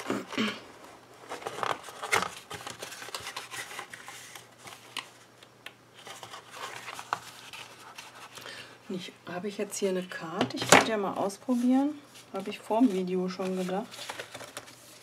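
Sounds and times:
cardboard box rustling: 0.9s - 5.1s.

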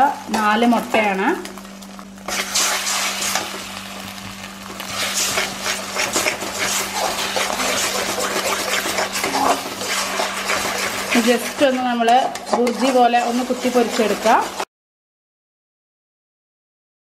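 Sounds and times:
eggs sizzling in hot oil: 0.0s - 14.7s
metal spatula scraping: 2.3s - 3.7s, 4.7s - 14.7s.

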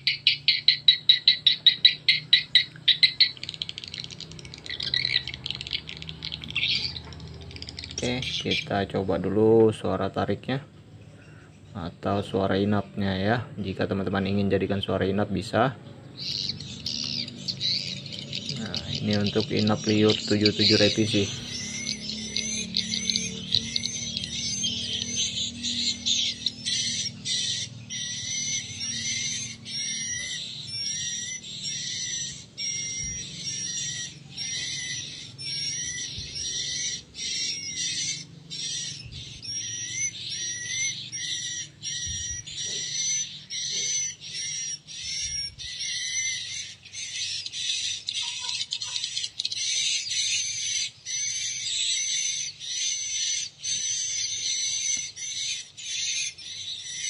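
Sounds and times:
recorded bird chirping twitters: 0.0s - 57.0s.

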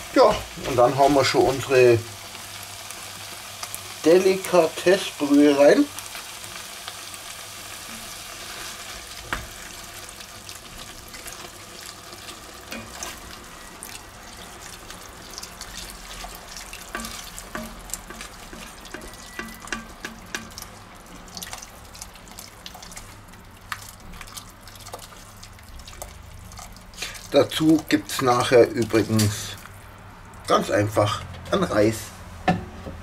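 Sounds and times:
vegetables sizzling: 0.0s - 31.2s
broth pouring into a pot: 5.8s - 30.5s
wooden spoon knocking on pot: 16.9s - 20.6s.

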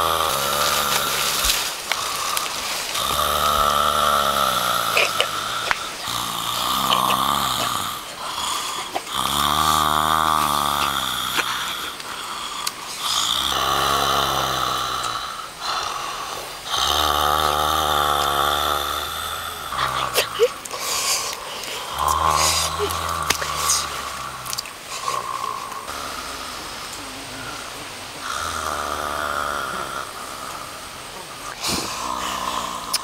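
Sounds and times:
person snoring: 0.0s - 33.0s.

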